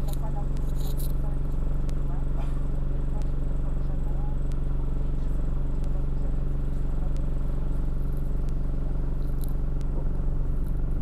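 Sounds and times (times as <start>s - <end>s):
bus engine low drone: 0.0s - 11.0s.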